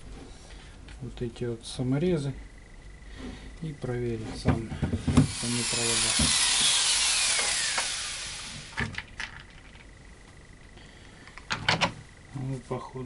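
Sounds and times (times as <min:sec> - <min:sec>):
power screwdriver whining: 0:05.1 - 0:08.8.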